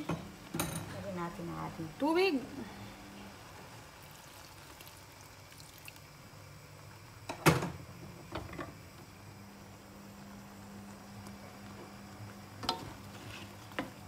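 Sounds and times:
water pouring into frying pan: 4.0 - 6.2.

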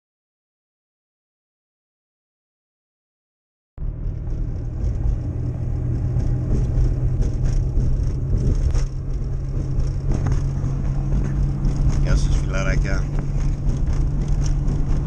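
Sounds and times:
car engine drone: 3.8 - 15.0
road rumble: 3.8 - 15.0.

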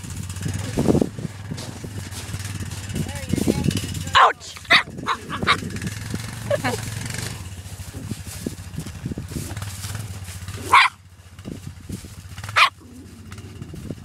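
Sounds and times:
small dog barking: 4.1 - 5.7, 10.6 - 11.0, 12.5 - 12.9.

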